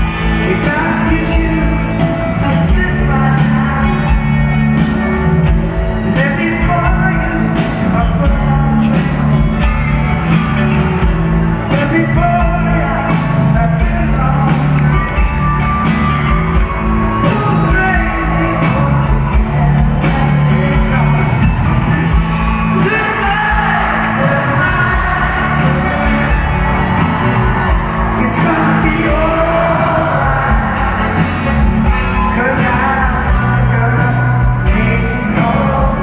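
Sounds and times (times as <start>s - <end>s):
man singing: 0.0s - 10.3s, 11.3s - 36.0s
live rock band: 0.0s - 36.0s
steady drum beat: 0.0s - 36.0s
sustained bass notes: 0.0s - 36.0s.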